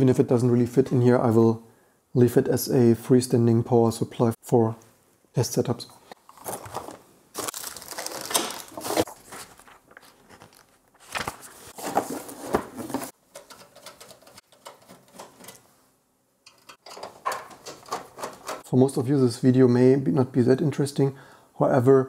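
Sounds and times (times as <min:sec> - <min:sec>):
plastic and bubble wrap crinkling: 0:06.2 - 0:13.1
cardboard box rustling: 0:06.3 - 0:13.1.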